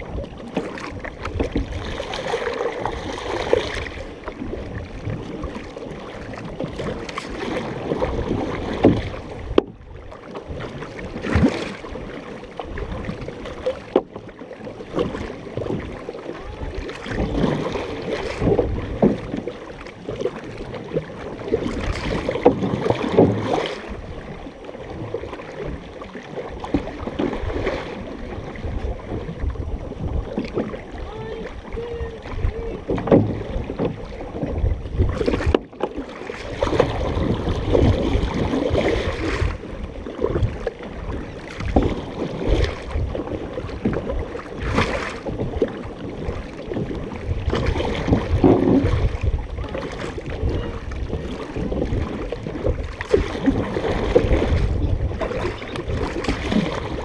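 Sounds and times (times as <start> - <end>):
water splashing along canoe hull: 0.0 - 57.0
wind buffeting microphone: 27.2 - 35.6, 36.4 - 57.0.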